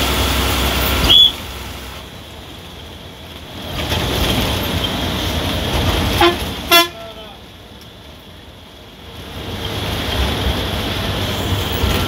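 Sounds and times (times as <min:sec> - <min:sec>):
bus engine: 0:00.0 - 0:12.0
road noise: 0:00.0 - 0:12.0
short horn toot: 0:06.2 - 0:07.2.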